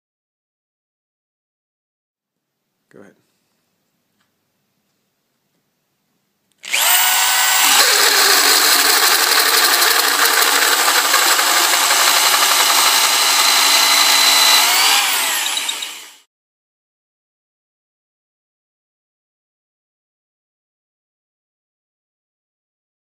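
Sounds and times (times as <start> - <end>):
electric drill with hole saw cutting wood: 6.6 - 16.3.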